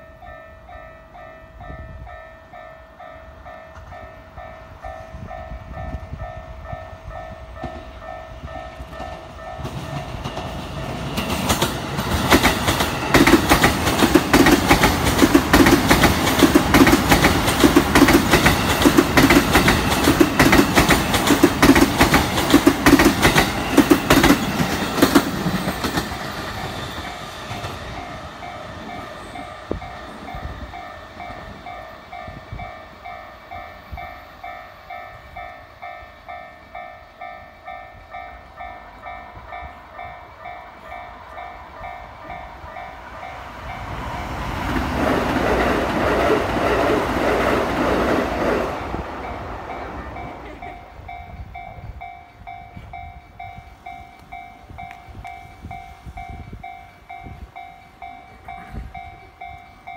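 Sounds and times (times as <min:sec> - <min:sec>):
train wheels clacking: 0:07.6 - 0:33.2.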